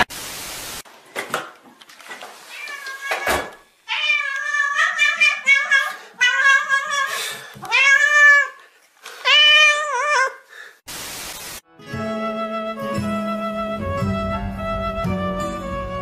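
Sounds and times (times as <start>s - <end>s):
static hiss: 0.0s - 0.8s, 10.9s - 11.6s
cat meowing loudly: 2.5s - 8.6s.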